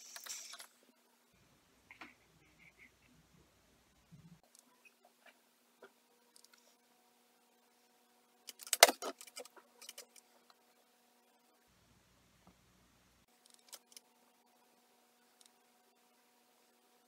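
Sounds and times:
faint hum: 0:00.0 - 0:08.6.

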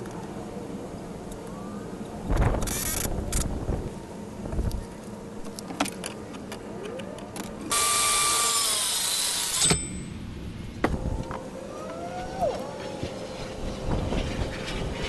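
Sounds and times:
circular saw cutting wood: 0:07.7 - 0:10.0.

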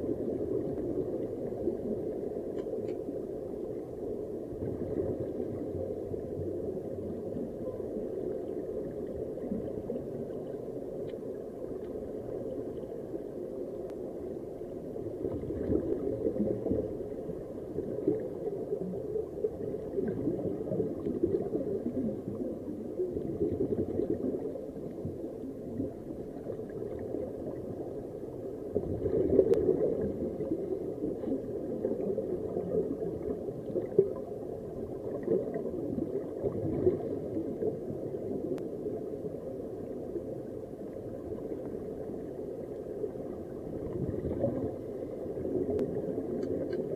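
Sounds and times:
underwater air bubbling: 0:00.0 - 0:46.9.

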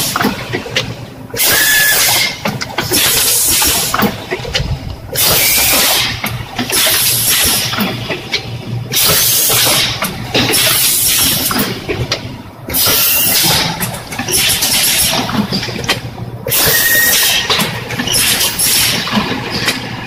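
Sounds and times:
packaging machine hissing: 0:01.4 - 0:04.1, 0:05.2 - 0:07.8, 0:08.9 - 0:11.8, 0:12.7 - 0:13.6, 0:14.3 - 0:15.2, 0:16.5 - 0:17.5, 0:18.1 - 0:19.1
machine low hum: 0:02.2 - 0:20.0.

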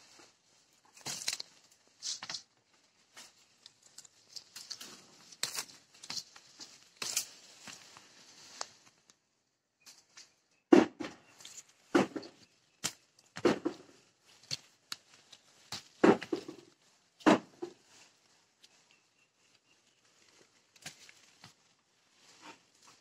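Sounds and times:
leafy branch rustling: 0:00.0 - 0:09.2.

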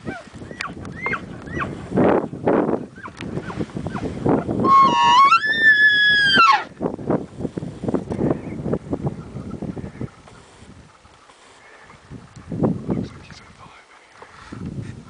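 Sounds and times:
elk bugling: 0:02.8 - 0:06.7
short squeaky calls: 0:04.7 - 0:06.6.

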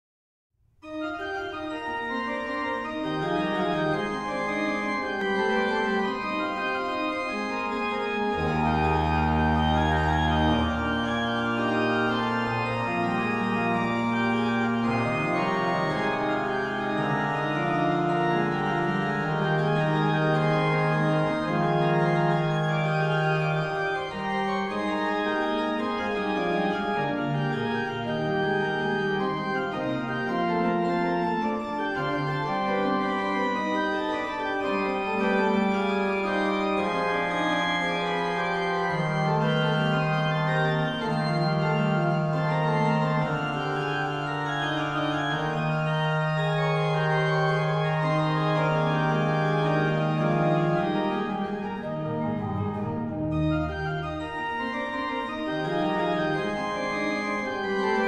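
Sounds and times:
organ chords: 0:00.8 - 0:58.0
deep bass organ note: 0:08.3 - 0:12.8.

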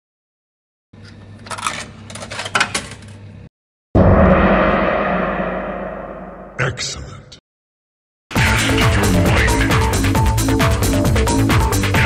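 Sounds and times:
deep ringing hit: 0:04.0 - 0:06.8.

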